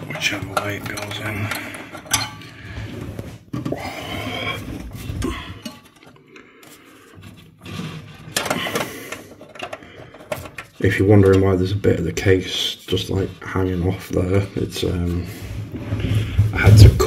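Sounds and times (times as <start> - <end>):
handling clatter: 0.0 - 2.7
cable plug scraping on metal: 4.6 - 11.4.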